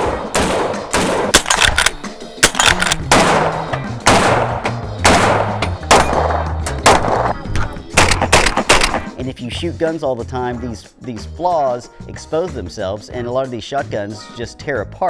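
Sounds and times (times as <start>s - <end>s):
gunshots with ringing tail: 0.0s - 7.4s
background music: 0.0s - 15.0s.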